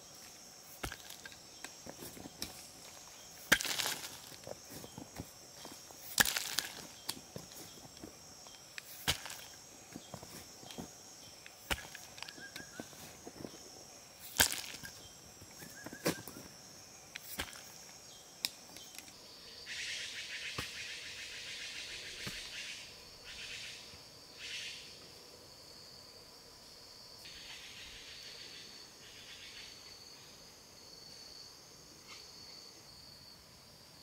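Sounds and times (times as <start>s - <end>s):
high insect drone: 0.0s - 34.0s
shovel digging clay soil: 0.7s - 13.6s, 14.2s - 16.4s, 17.2s - 17.9s.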